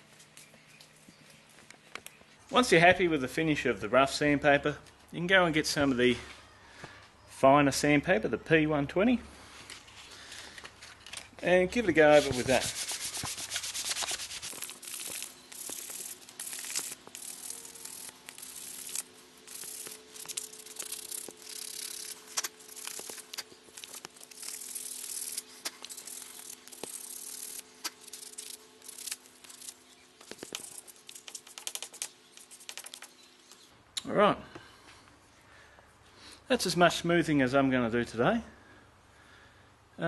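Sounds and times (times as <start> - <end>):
sandpaper rubbing on wood: 11.8 - 33.1.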